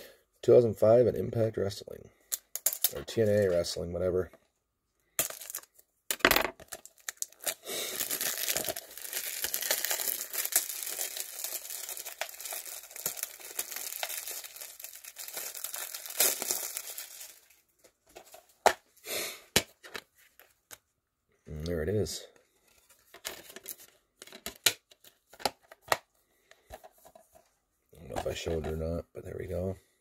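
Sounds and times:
plastic wrap crinkling: 0:06.6 - 0:18.5.

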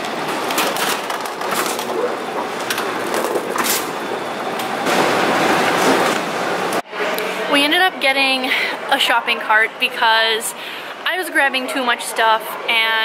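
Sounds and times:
metal shopping cart rattling: 0:00.2 - 0:04.0.

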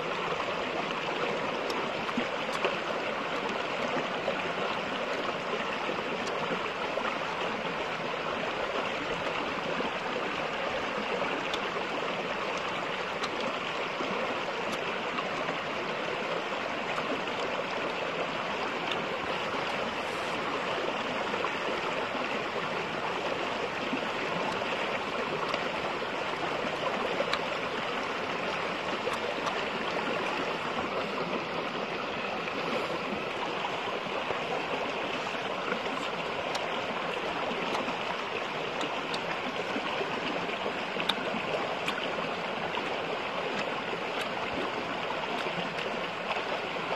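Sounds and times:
running water rushing: 0:00.0 - 0:46.9
faint clicks: 0:12.6 - 0:13.6, 0:35.1 - 0:42.9.

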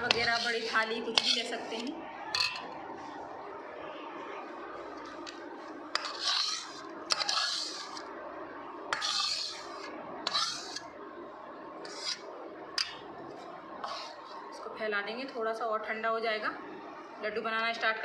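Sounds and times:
spatula scraping metal pan: 0:00.0 - 0:01.9, 0:05.9 - 0:08.1, 0:08.9 - 0:10.9, 0:11.8 - 0:13.0, 0:13.8 - 0:14.4.

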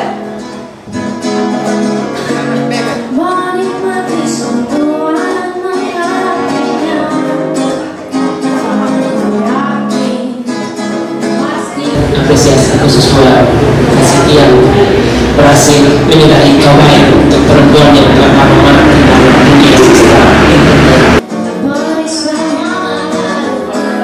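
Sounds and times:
acoustic guitar: 0:00.0 - 0:24.0
woman singing: 0:03.1 - 0:12.2, 0:20.6 - 0:24.0.

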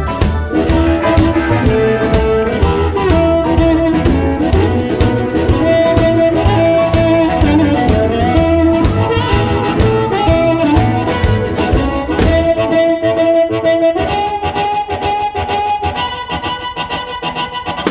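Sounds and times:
drum beat: 0:00.0 - 0:12.6
bass guitar: 0:00.0 - 0:17.9
blues harmonica: 0:00.0 - 0:17.9
electric guitar: 0:00.0 - 0:17.9.

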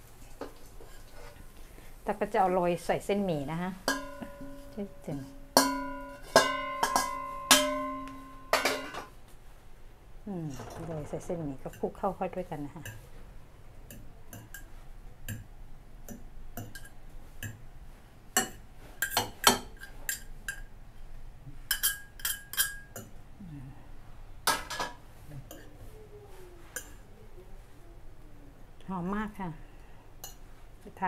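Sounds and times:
spoon clinking against dish: 0:03.9 - 0:04.8, 0:05.6 - 0:09.0, 0:21.7 - 0:23.1.

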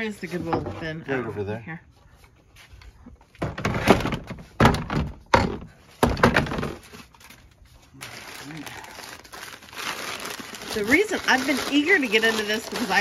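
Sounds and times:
objects knocking and thudding: 0:00.3 - 0:01.0, 0:03.1 - 0:07.2.

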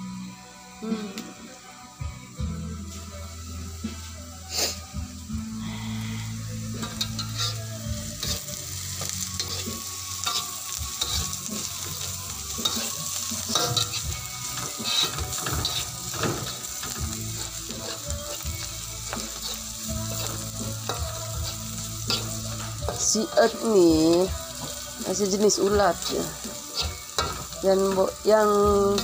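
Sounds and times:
onions sizzling in hot oil: 0:00.0 - 0:29.0
metal spatula scraping a pan: 0:06.8 - 0:23.6, 0:24.5 - 0:28.1.

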